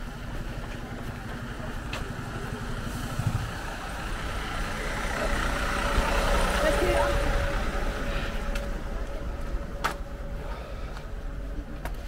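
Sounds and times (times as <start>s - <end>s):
low engine rumble: 0.0s - 12.0s.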